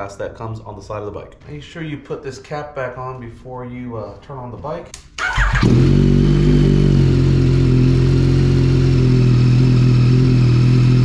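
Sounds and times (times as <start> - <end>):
motorcycle engine idling: 5.4 - 11.0.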